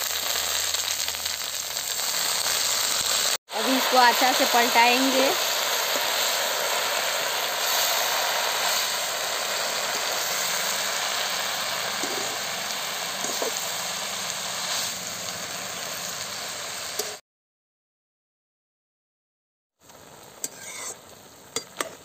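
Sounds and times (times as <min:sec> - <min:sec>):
leaves sizzling in hot oil: 0:00.0 - 0:17.2, 0:19.8 - 0:22.0
metal spatula scraping pan: 0:20.4 - 0:21.0.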